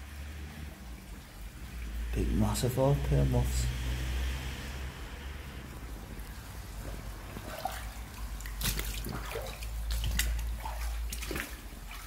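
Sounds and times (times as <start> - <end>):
water drips and plops: 0.0 - 2.2, 6.1 - 12.0
stream water trickling: 0.0 - 12.0.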